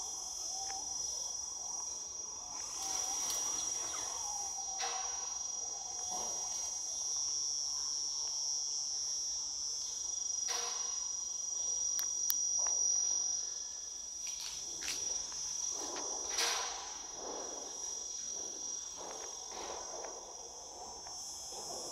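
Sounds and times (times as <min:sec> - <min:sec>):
insect chorus drone: 0:00.0 - 0:21.9
rustles: 0:02.5 - 0:07.1.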